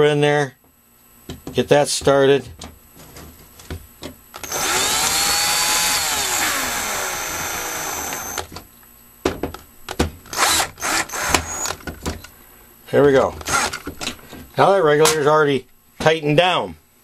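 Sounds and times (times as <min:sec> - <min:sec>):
power driver short bursts: 0:04.4 - 0:08.5, 0:10.3 - 0:11.8, 0:13.4 - 0:13.8
power driver whining: 0:04.4 - 0:08.6, 0:10.3 - 0:11.8, 0:13.4 - 0:13.9.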